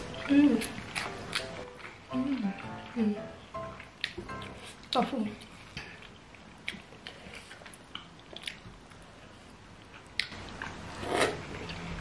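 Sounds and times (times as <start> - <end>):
wet chewing mouth clicks: 0.6 - 2.9, 5.8 - 8.7
loud noodle slurp: 10.9 - 11.5.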